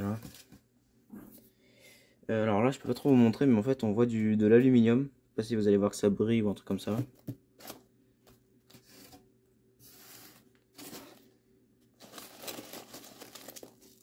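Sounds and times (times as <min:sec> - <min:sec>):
foil packaging crinkling: 0:09.9 - 0:11.3, 0:11.9 - 0:14.0.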